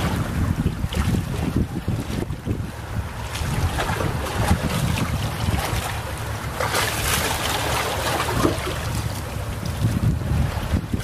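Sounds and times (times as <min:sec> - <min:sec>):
sea waves washing onto beach: 0:00.0 - 0:11.0
wind rumble on microphone: 0:00.0 - 0:11.0.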